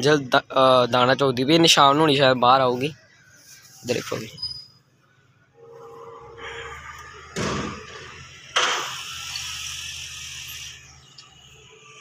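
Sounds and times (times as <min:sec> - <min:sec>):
steady background noise: 0:00.0 - 0:12.0
sudden thuds: 0:07.4 - 0:08.0.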